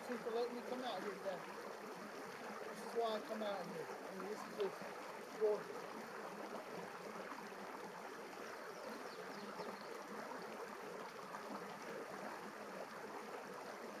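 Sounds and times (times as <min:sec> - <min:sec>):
water rushing over rocks: 0:00.0 - 0:14.0.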